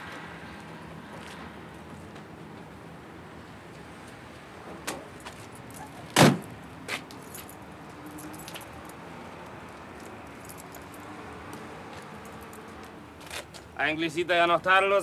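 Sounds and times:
truck door slamming: 6.1 - 6.5
keys jingling in lock: 7.2 - 9.0, 10.0 - 11.1.

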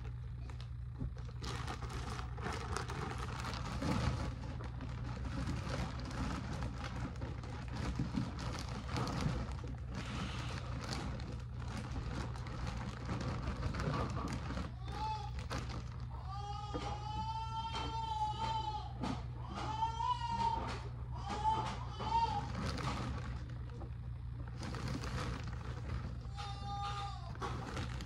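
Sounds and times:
plastic bag crinkling: 0.0 - 16.4, 22.1 - 28.0
low steady hum: 0.0 - 28.0.

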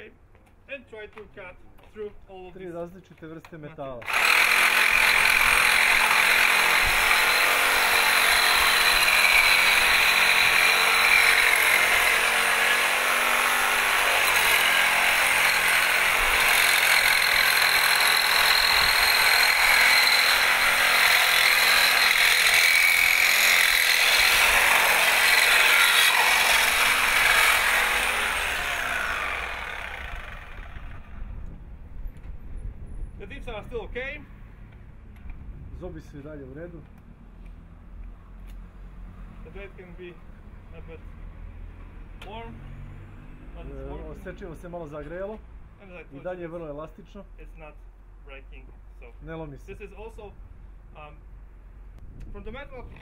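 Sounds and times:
reciprocating saw cutting metal: 4.0 - 31.3.

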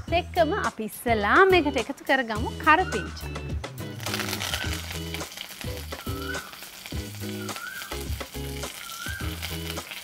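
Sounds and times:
low background music: 0.0 - 10.0
leaves sizzling in hot oil: 3.8 - 10.0.

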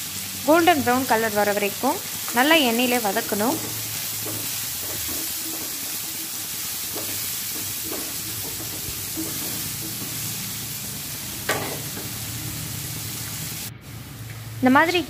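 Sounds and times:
onions sizzling in oil: 0.0 - 15.0
wooden spatula scraping: 3.3 - 10.5.

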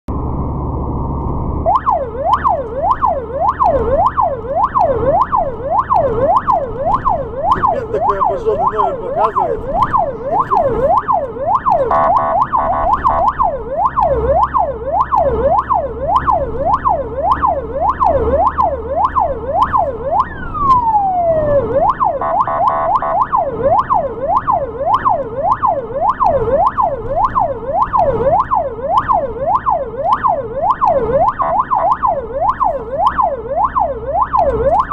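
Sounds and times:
low engine and road rumble: 0.0 - 34.9
ambulance siren yelping: 1.6 - 34.9
short blaring horn bursts: 11.9 - 12.9.

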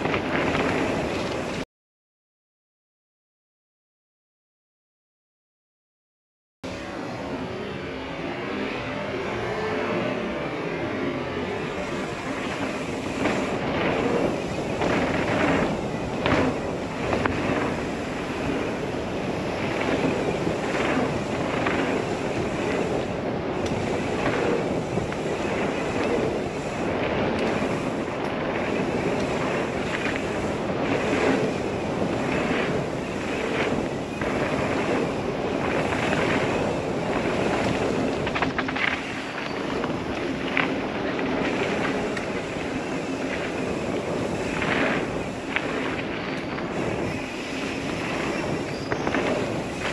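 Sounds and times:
bike rattles and knocks: 0.0 - 1.6, 11.9 - 49.9
bike tyre noise on dirt: 0.0 - 1.6, 6.7 - 49.9
wind rushing over microphone: 0.0 - 1.6, 9.2 - 49.9.

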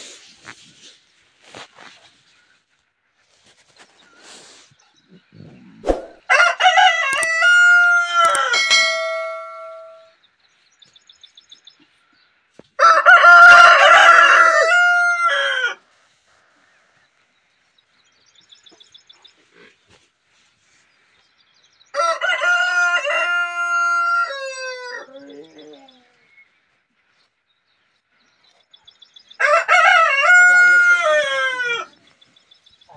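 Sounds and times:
rooster crowing: 6.3 - 9.9, 12.8 - 15.8, 21.9 - 25.4, 29.4 - 32.0.

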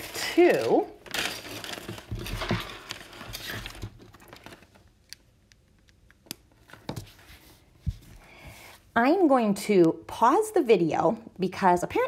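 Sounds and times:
rustling handling noise: 0.0 - 5.0.

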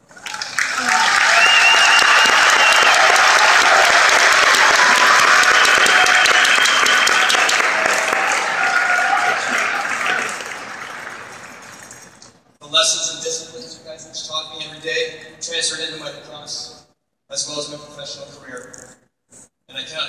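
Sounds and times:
crowd applauding: 0.0 - 12.2.

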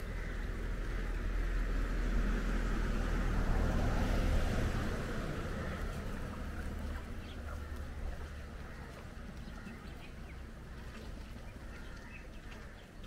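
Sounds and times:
passing vehicle rumble: 0.0 - 13.0
faint bird calls: 5.6 - 13.0.

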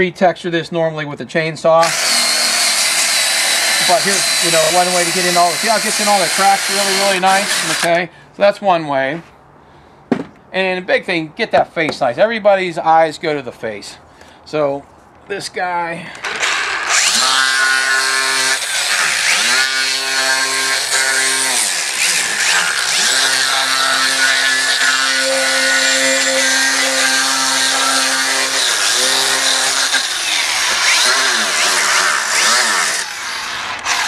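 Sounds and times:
power carving tool on wood: 1.8 - 8.0, 16.2 - 34.0.

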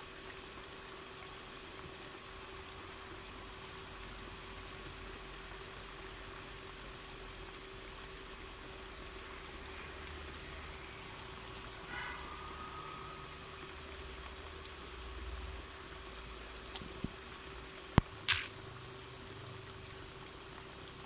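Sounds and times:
faint steady hum: 0.0 - 21.0
sharp click: 18.2 - 18.5.

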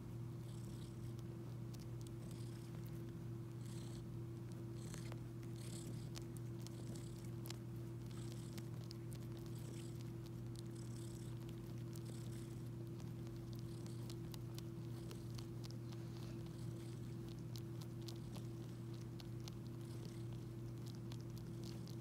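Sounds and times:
kitten purring: 0.0 - 22.0.

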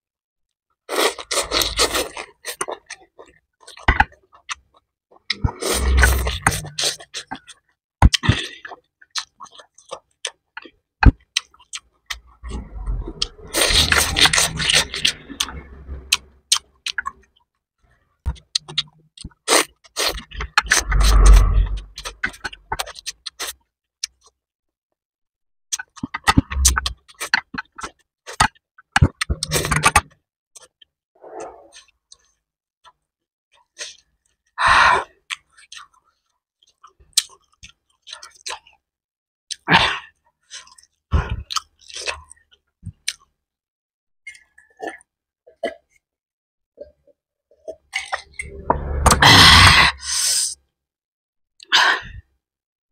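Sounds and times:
chewing: 0.9 - 17.4, 40.5 - 43.3.

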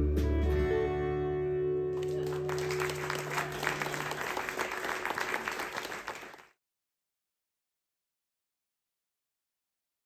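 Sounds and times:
audience applauding: 2.0 - 6.6.

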